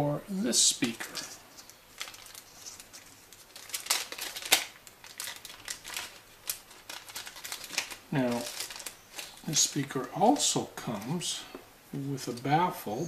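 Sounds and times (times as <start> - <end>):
plastic bag crinkling: 0.8 - 11.0.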